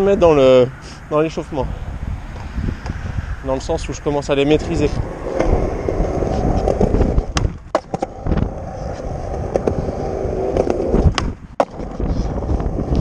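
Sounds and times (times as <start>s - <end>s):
skateboard wheels rumbling: 4.3s - 13.0s
skateboard clacks: 5.2s - 9.8s.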